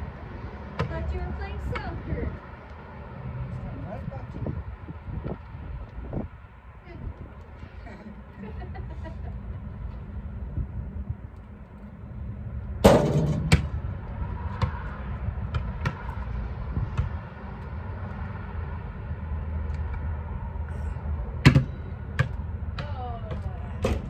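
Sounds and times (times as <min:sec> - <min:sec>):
basketball bouncing on asphalt: 0:00.5 - 0:02.9, 0:12.6 - 0:18.8, 0:21.4 - 0:24.0
steady low rumble: 0:03.5 - 0:24.0
basketball clanging on metal hoop: 0:12.8 - 0:13.7.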